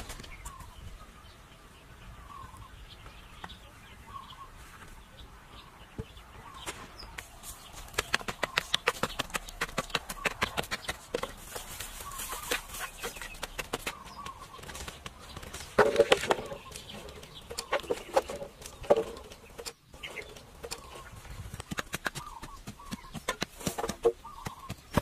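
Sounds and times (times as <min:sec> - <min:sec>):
faint bird chirps: 0:00.1 - 0:07.8, 0:10.1 - 0:15.6, 0:22.1 - 0:23.3, 0:24.1 - 0:25.0
rapid sharp knocks: 0:07.9 - 0:11.4.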